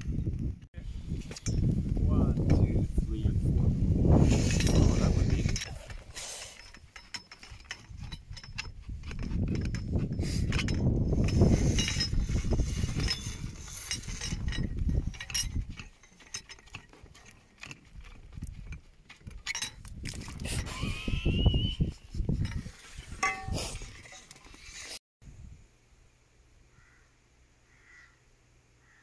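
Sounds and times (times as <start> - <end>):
metal rod knocking and clinking: 6.6 - 20.7, 23.2 - 24.4.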